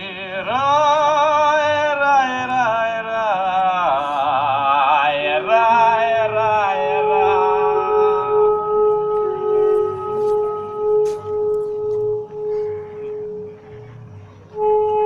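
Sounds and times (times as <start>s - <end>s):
wordless chant-like singing: 0.0s - 15.0s
steady drone tone: 3.4s - 15.0s.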